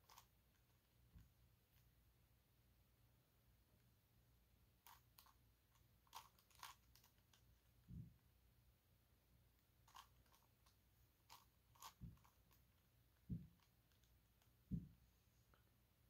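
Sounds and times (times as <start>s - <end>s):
plastic puzzle clicks: 6.0s - 7.2s, 9.9s - 10.5s
soft low thumps: 14.7s - 15.0s.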